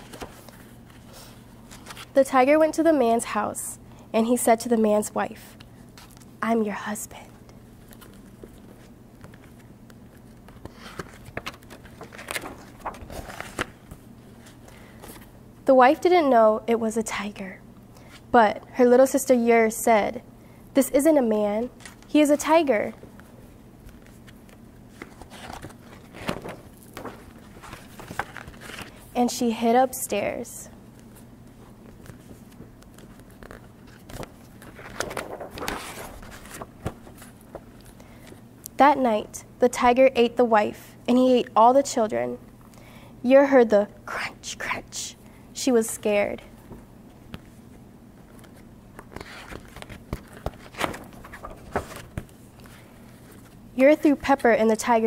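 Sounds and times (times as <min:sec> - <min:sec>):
paper rustling: 0:00.0 - 0:02.2, 0:07.8 - 0:15.3, 0:21.8 - 0:29.1, 0:30.9 - 0:38.4, 0:46.6 - 0:53.6.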